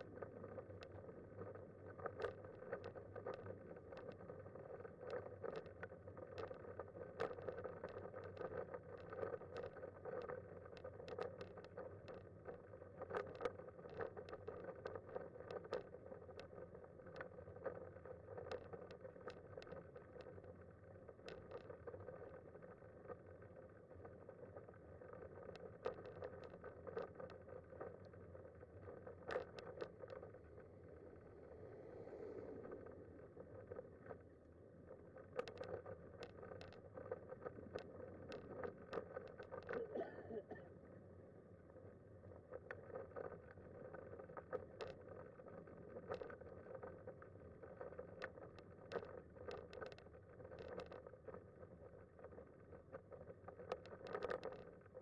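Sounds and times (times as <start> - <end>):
sharp clicks and rattles: 24.0 - 31.8, 32.5 - 40.0, 42.5 - 55.0
wheelchair rolling on asphalt: 25.2 - 40.0.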